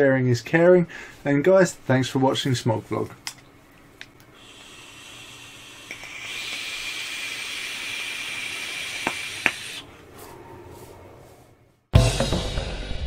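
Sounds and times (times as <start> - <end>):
air hissing through vape: 4.3 - 9.9
thin steady whistle: 4.4 - 11.2.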